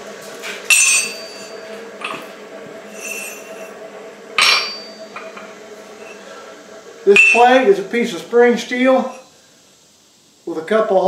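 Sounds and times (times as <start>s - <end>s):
steel clinking on anvil: 0.7s - 2.2s, 4.4s - 6.2s, 7.1s - 7.6s.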